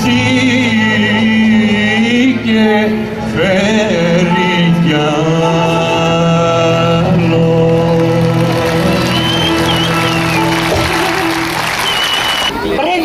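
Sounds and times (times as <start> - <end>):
man singing into a microphone: 0.0 - 9.2.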